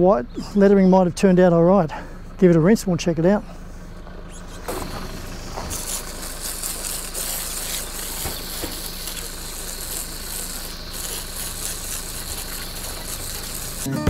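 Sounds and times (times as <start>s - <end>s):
hose spray hissing: 4.3s - 14.0s.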